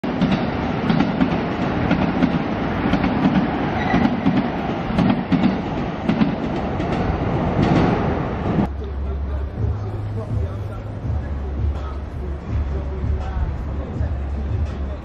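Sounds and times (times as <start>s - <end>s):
train wheel clatter: 0.0s - 8.1s
train rumbling on tracks: 0.0s - 15.0s.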